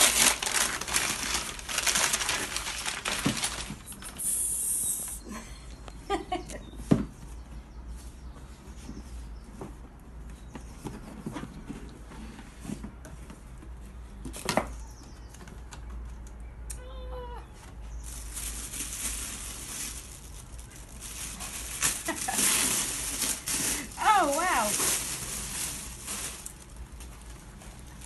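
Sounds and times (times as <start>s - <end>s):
paper rustling: 0.0s - 4.3s, 18.0s - 28.0s
tissue paper crinkling: 0.0s - 4.4s, 18.0s - 28.0s.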